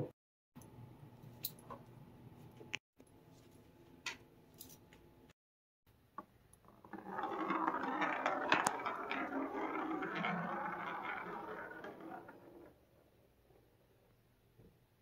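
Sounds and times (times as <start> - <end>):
marble rolling on wooden floor: 6.2 - 14.1.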